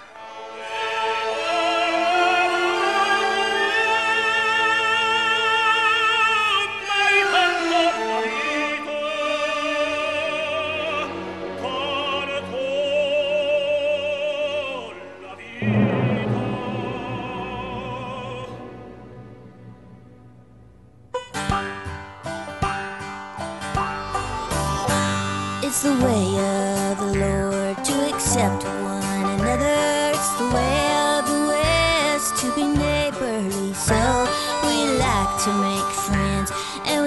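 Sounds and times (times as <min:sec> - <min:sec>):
operatic voice singing: 0:00.6 - 0:18.6
orchestra playing: 0:15.5 - 0:21.5.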